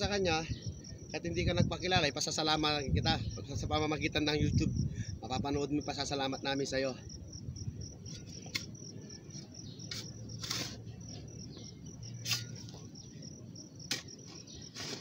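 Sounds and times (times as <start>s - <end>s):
insects trilling: 0.0s - 15.0s
short scrapes and knocks: 9.8s - 11.2s, 12.2s - 12.8s, 13.9s - 15.0s.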